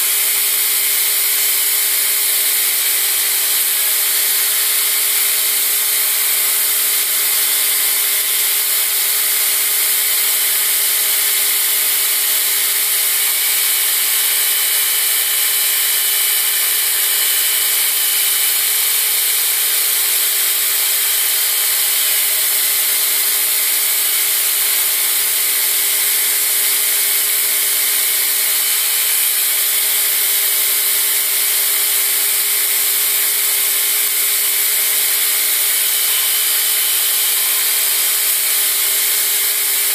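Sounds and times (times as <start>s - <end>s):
belt grinder machine whine: 0.0s - 39.9s
steel hissing on abrasive belt: 10.3s - 23.0s, 32.3s - 39.9s.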